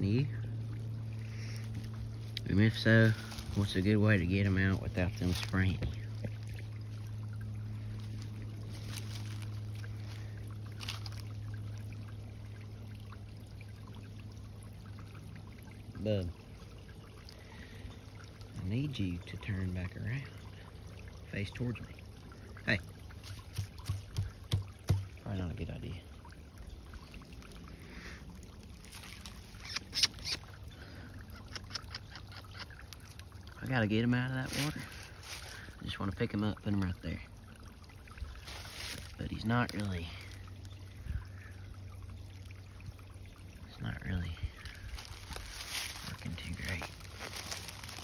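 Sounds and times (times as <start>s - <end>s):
low hum: 0.0s - 32.0s
water trickling in a creek: 0.0s - 48.0s
footsteps in dry leaves: 3.0s - 3.8s, 4.7s - 5.8s, 7.9s - 10.2s, 10.8s - 11.3s, 28.8s - 29.6s, 34.4s - 35.7s, 38.4s - 39.2s, 44.6s - 48.0s.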